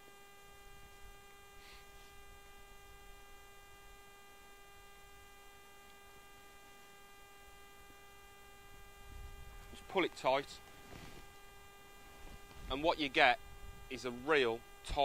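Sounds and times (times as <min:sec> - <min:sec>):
faint electrical hum: 0:00.0 - 0:15.0.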